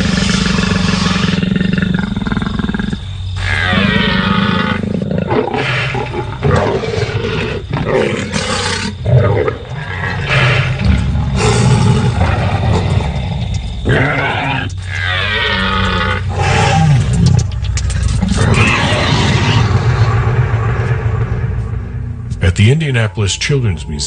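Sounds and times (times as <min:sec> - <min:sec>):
low rumble: 0:16.3 - 0:24.0
dinosaur roars: 0:18.2 - 0:22.0.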